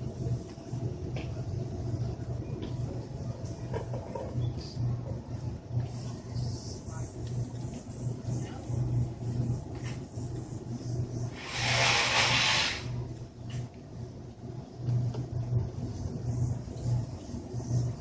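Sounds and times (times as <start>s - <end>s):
steady low hum: 0.0s - 18.0s
loud hiss: 11.3s - 13.0s.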